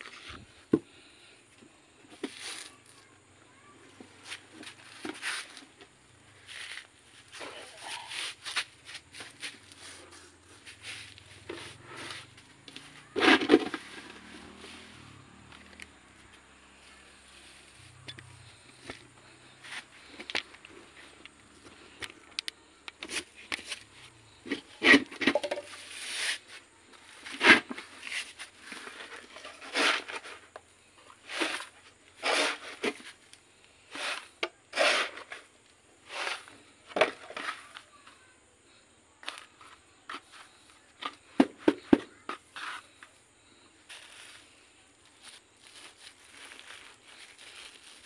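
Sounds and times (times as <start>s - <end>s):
potting soil rustling as poured: 43.9s - 48.0s.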